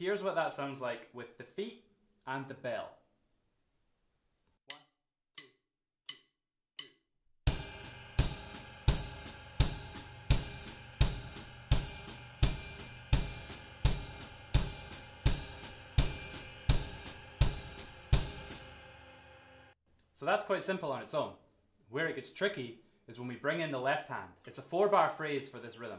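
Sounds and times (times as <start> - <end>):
drumstick clicks: 4.7 - 7.0
ride cymbal bell: 7.5 - 18.7
bass drum: 7.5 - 18.8
hi-hat closing: 7.5 - 18.9.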